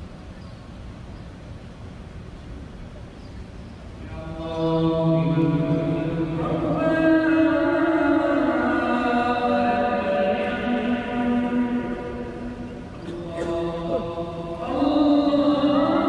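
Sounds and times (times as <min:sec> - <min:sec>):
man chanting over loudspeakers: 0:04.0 - 0:16.0.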